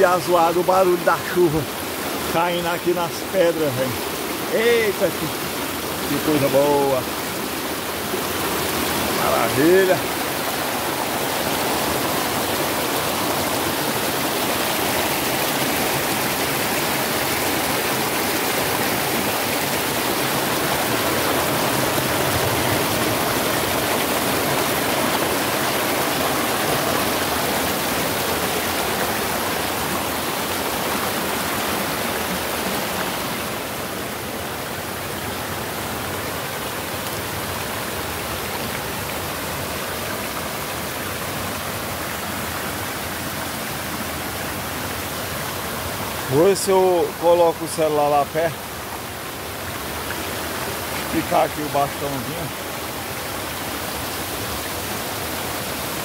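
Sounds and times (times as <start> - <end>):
water rushing over rocks: 0.0 - 56.0.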